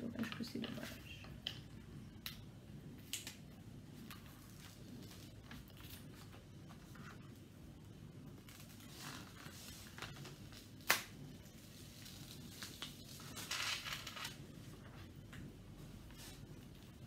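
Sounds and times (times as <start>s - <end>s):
plastic-covered canvas crinkling: 8.4s - 14.9s.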